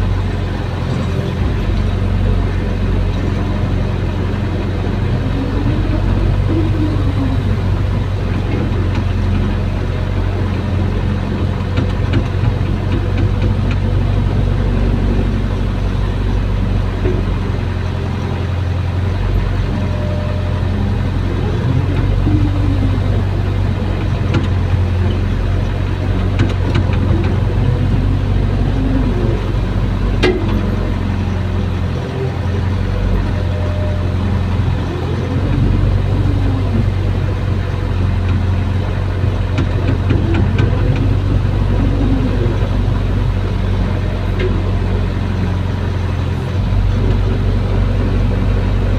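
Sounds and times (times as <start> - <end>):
excavator diesel engine running: 0.0 - 48.9
hydraulic whine: 0.0 - 48.9.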